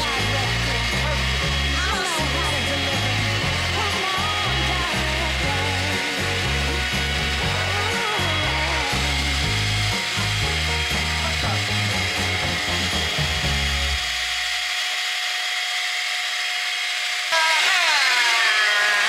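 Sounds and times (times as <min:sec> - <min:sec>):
electric hand mixer whining: 0:00.0 - 0:19.0
background music with low beat: 0:02.3 - 0:14.2.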